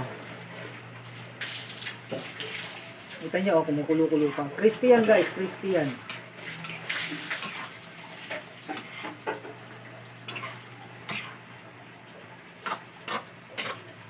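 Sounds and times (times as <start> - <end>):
tofu sizzling: 6.1 - 14.0.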